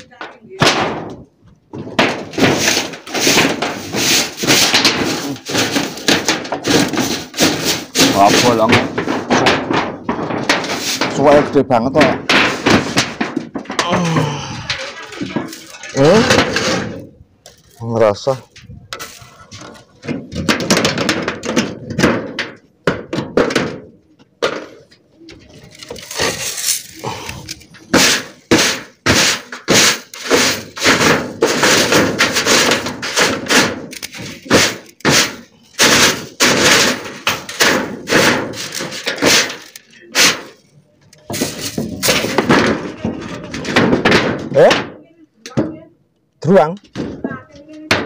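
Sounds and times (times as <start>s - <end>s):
sharp knocks and bangs: 0.0s - 17.2s, 18.3s - 24.9s, 25.7s - 40.6s, 41.2s - 45.9s, 46.8s - 48.0s
scuffling handling noise: 17.5s - 20.3s, 24.1s - 43.6s.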